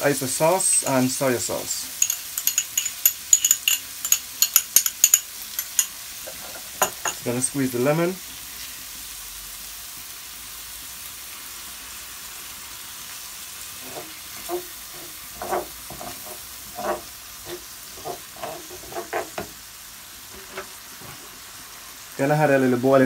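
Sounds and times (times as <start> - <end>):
vegetables sizzling in a frying pan: 0.0 - 23.0
wooden spoon scraping a pan: 5.6 - 7.1, 13.8 - 21.6.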